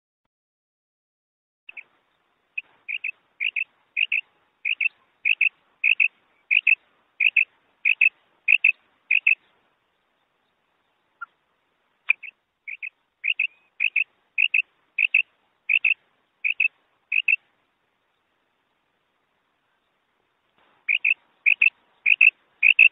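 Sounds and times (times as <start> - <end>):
quail calling: 2.6 - 9.5, 11.2 - 11.4, 12.1 - 17.4, 20.9 - 22.9.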